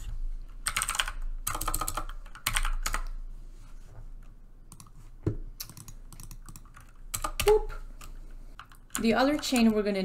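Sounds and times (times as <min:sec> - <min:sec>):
keyboard typing: 0:00.6 - 0:03.2, 0:04.7 - 0:05.0, 0:05.6 - 0:10.0.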